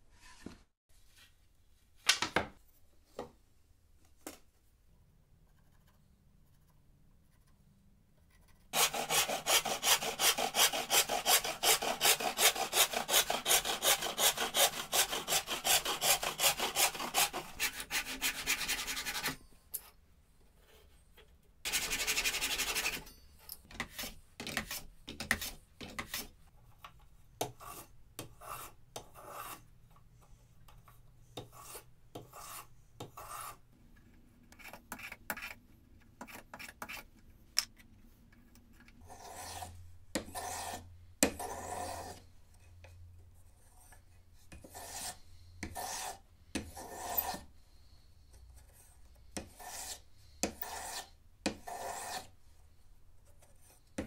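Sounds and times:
hand plane shaving wood: 8.8 - 19.3, 44.6 - 47.4, 49.5 - 52.3
hand saw cutting wood: 8.8 - 19.4, 44.6 - 47.5, 49.4 - 52.3
pull saw sawing: 8.8 - 19.4.

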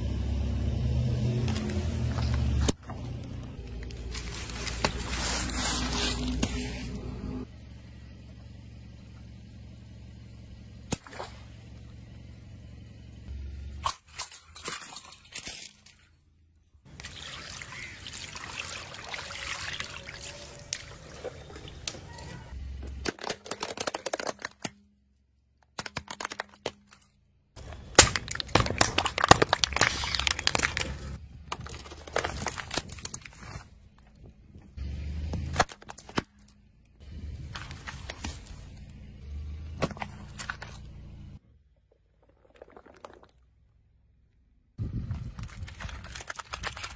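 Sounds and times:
plastic crackling and crunching: 1.5 - 6.6, 22.9 - 24.8, 25.6 - 27.0, 27.6 - 34.2, 42.2 - 43.5, 45.1 - 46.9
rubber gloves squelching and splashing: 3.6 - 6.8, 16.9 - 22.0, 27.6 - 33.8, 42.2 - 43.4, 45.4 - 46.9.

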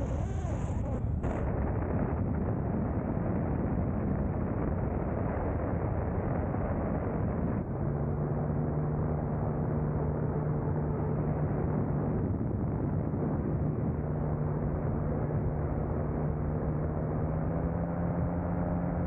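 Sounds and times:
engine hum: 0.0 - 19.0
glider flight rumble: 0.0 - 19.0.

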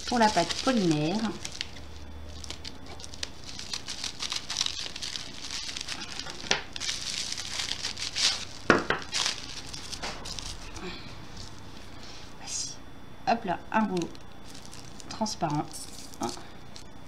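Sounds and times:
sharp crackle of bubble wrap: 0.0 - 12.2, 13.8 - 17.0
bubble wrap crinkling: 0.0 - 12.4, 13.8 - 17.0.

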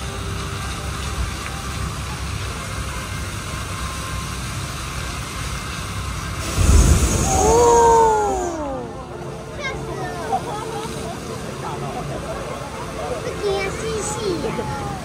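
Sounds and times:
fountain water jets spraying: 0.0 - 15.0
loud low thud: 6.4 - 7.8
low rumble: 6.4 - 9.1.

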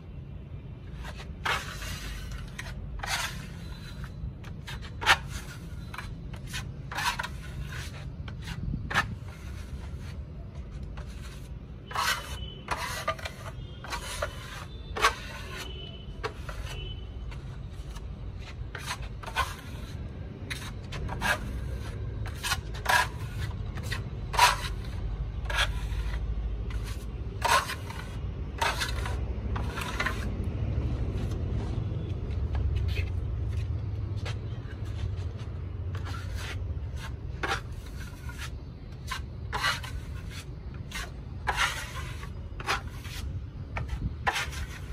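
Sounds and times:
trowel scraping across a wall: 0.8 - 31.4, 34.3 - 44.9
steady low rumble: 28.2 - 36.0.

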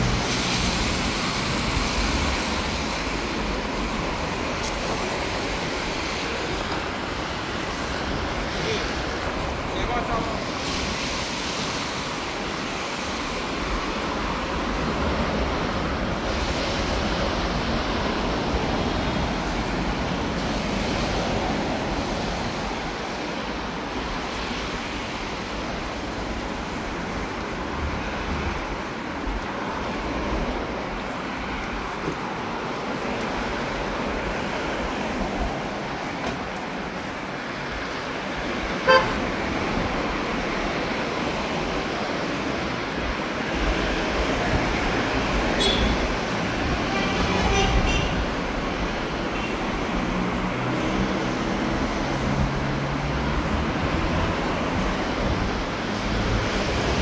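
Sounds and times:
road traffic: 0.0 - 57.0
car horn toot: 38.8 - 39.2, 45.6 - 46.0, 46.8 - 48.2.

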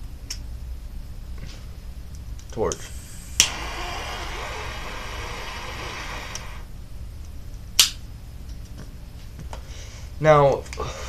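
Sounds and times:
jet flame hissing: 2.6 - 6.7.

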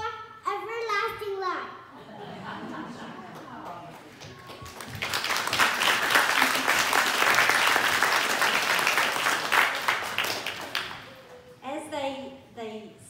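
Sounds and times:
audience applauding: 3.2 - 11.6.

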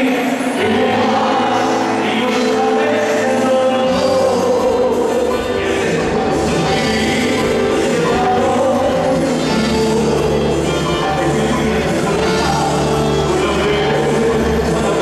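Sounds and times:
live rock band with singer: 0.0 - 15.0.

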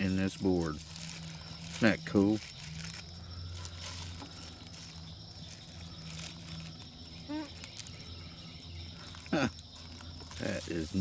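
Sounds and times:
campfire crackling: 0.0 - 11.0
person murmuring: 9.3 - 9.6.

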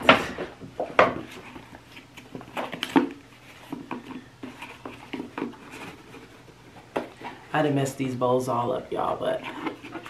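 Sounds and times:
box handling rustles and ticks: 0.8 - 7.6, 9.0 - 10.0.

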